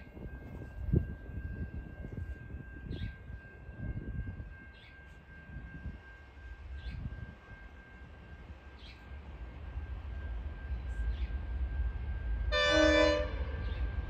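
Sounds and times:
diesel locomotive engines rumbling: 0.0 - 14.0
train horn blast: 12.4 - 13.9.

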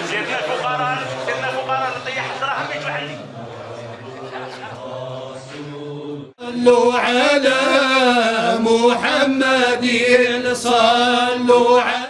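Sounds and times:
murmur of voices: 0.0 - 9.3
men chanting: 0.0 - 12.0.

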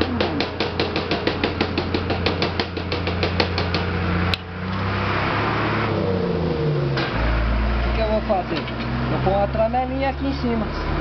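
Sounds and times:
hammer tapping on metal: 0.0 - 3.9.

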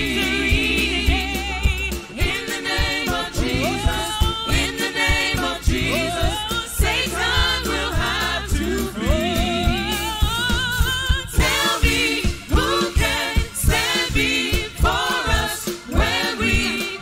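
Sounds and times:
bass: 0.0 - 17.0
drum beat: 0.0 - 17.0
women singing gospel: 0.0 - 17.0.

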